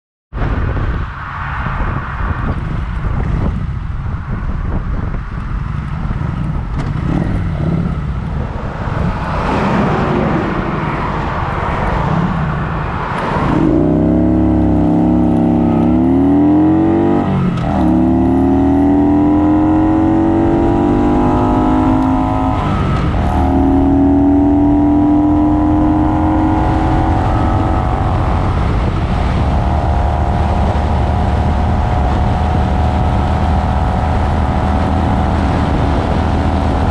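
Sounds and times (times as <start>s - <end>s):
wind and road noise: 0.3s - 36.9s
motorcycle engine revving: 6.4s - 10.8s, 13.4s - 36.9s
truck passing: 7.1s - 36.9s.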